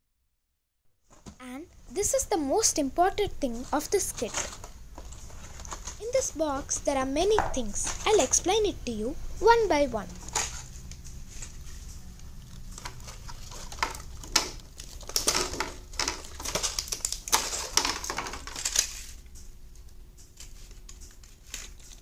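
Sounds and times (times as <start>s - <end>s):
plastic box clicks and crackles: 12.7s - 19.1s.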